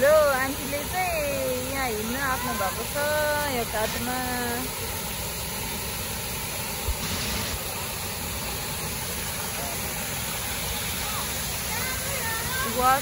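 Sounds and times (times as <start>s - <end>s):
waterfall rushing: 0.0s - 13.0s.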